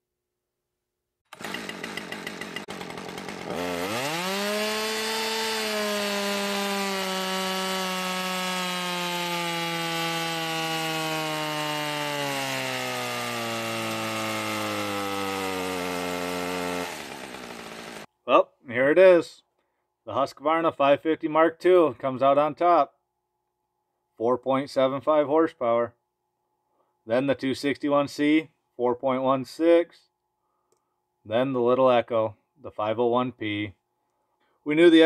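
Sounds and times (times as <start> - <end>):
chainsaw engine revving: 1.3 - 18.1.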